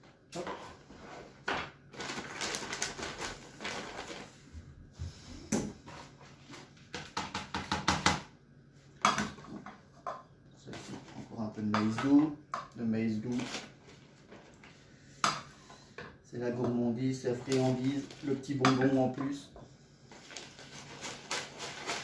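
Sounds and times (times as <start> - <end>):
plastic bag crinkling: 1.9 - 4.4, 13.2 - 14.8, 17.3 - 18.6, 20.1 - 22.0.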